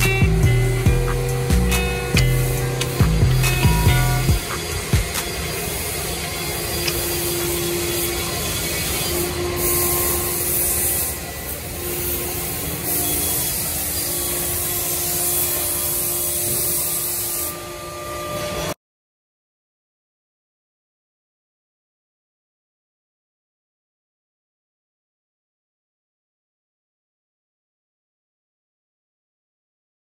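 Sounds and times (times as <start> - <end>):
air blow gun hissing: 0.0 - 18.0
steady workshop hum: 0.0 - 18.8.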